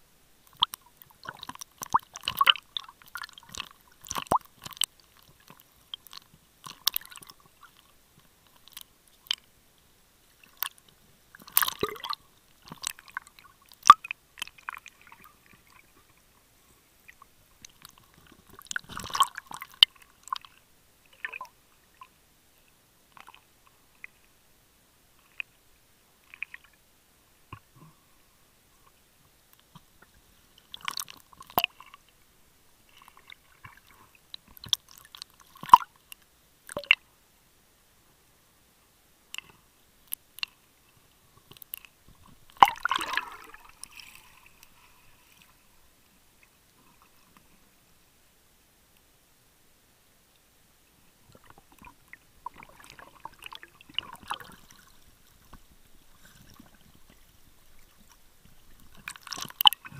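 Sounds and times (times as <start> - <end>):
underwater clicks and crackling: 0.4 - 9.6, 10.3 - 22.2, 25.2 - 25.6, 26.3 - 26.8, 29.5 - 32.2, 32.9 - 37.0, 39.3 - 45.6, 51.3 - 59.9.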